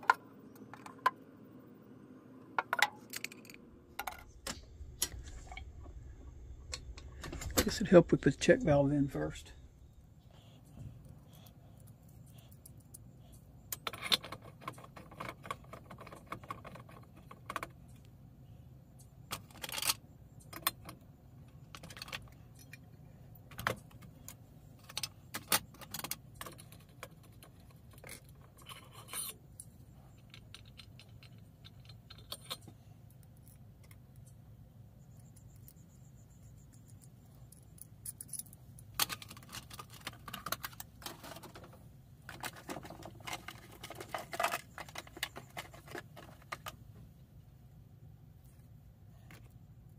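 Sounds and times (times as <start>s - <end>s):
low steady hum: 0.0s - 49.9s
metal tools clinking and scraping: 25.9s - 32.8s.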